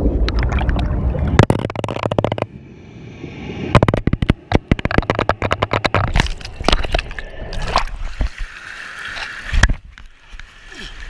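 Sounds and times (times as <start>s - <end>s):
water gurgling: 0.0s - 2.6s, 3.8s - 11.0s
camera housing knocking underwater: 1.4s - 2.5s, 3.8s - 7.0s.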